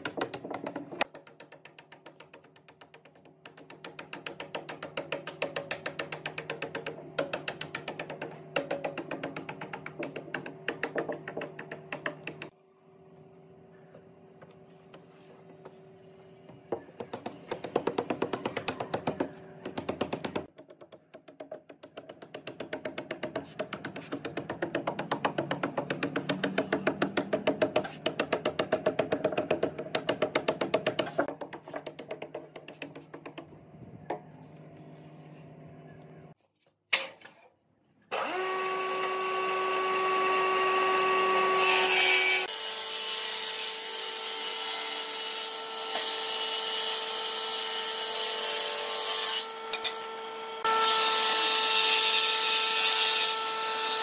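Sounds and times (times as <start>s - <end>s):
woodworking machine humming: 38.1s - 43.2s.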